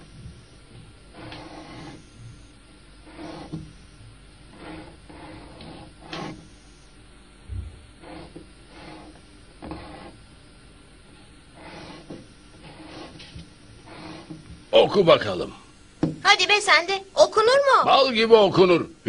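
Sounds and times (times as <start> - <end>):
chalk scratching on blackboard: 1.1 - 6.8, 8.0 - 10.2, 11.1 - 15.0
dull knock: 16.0 - 16.2.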